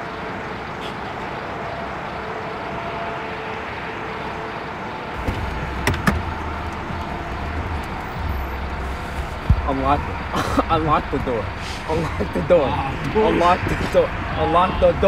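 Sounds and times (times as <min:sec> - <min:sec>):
car door latch clicks: 0:05.2 - 0:07.1
car idling: 0:05.2 - 0:15.0
low rumble: 0:05.2 - 0:15.0.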